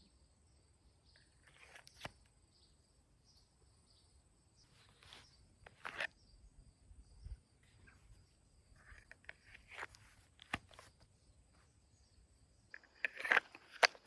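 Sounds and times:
person shifting with rustling clicks: 1.4s - 2.1s, 4.7s - 6.2s, 7.6s - 11.7s, 12.7s - 14.0s.

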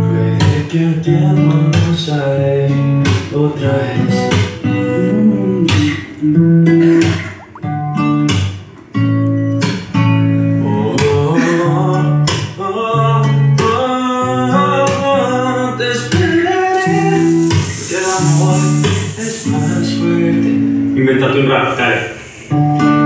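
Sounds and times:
acoustic guitar: 0.0s - 23.0s
person singing: 0.4s - 7.7s, 10.6s - 20.4s.

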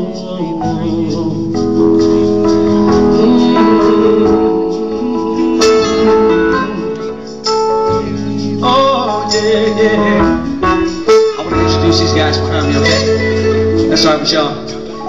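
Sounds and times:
man singing into microphone: 0.0s - 7.5s, 8.5s - 15.0s
acoustic guitar: 0.0s - 15.0s
electric keyboard: 0.0s - 15.0s.

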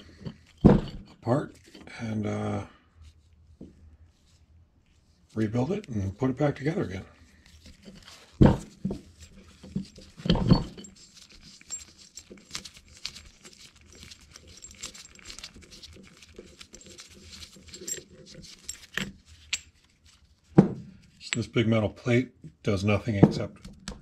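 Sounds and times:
metal parts clicking and rattling: 0.0s - 1.9s, 7.4s - 20.2s
metal part thump: 0.2s - 1.2s, 8.3s - 9.0s, 10.2s - 10.9s, 20.6s - 20.9s, 23.2s - 23.6s.

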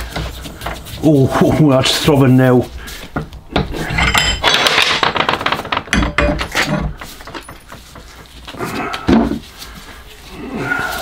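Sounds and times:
metal tools clanking: 3.6s - 8.0s.

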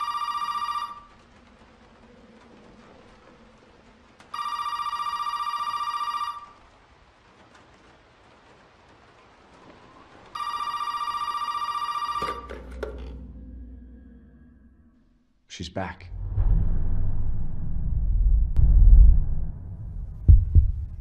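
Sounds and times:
desk telephone ringing: 0.0s - 1.1s, 4.4s - 6.6s, 10.4s - 12.7s
low rumble: 1.1s - 4.4s, 12.6s - 15.4s, 16.0s - 21.0s.

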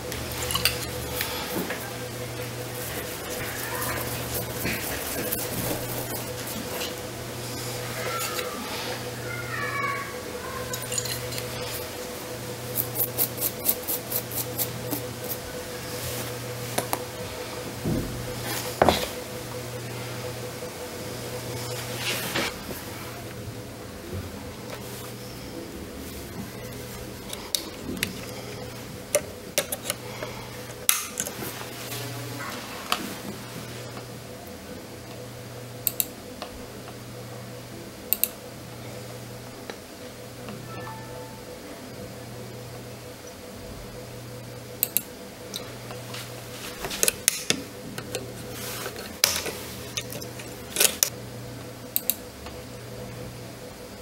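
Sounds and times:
low electrical hum: 0.0s - 54.0s
hand tools clicking and tapping: 29.1s - 31.4s, 46.8s - 48.3s, 48.9s - 51.1s.

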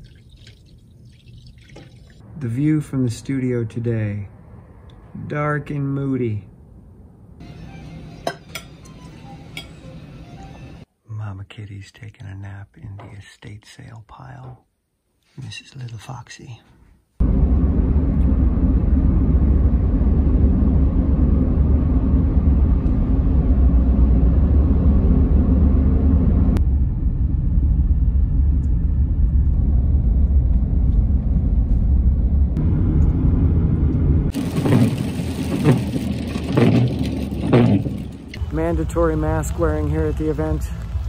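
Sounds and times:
car cabin road rumble: 17.2s - 41.0s
tires hissing on wet road: 34.3s - 37.7s
rain tapping on windscreen: 34.3s - 38.0s.

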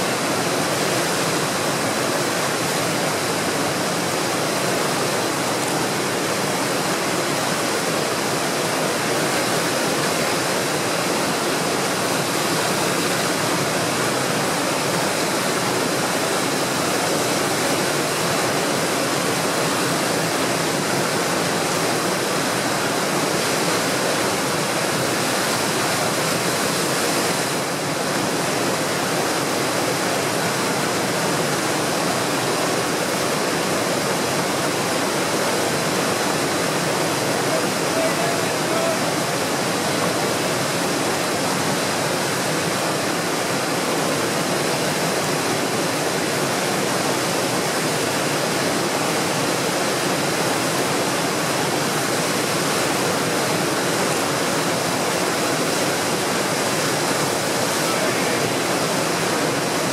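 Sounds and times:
whitewater rapids rushing: 0.0s - 59.9s.

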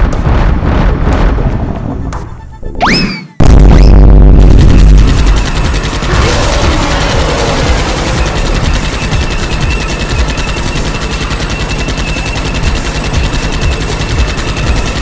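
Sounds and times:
rapid cartoon gunfire: 3.4s - 15.0s.

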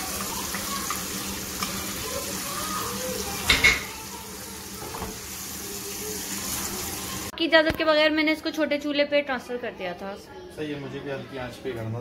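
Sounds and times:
chicken sizzling in oil: 0.0s - 7.3s.

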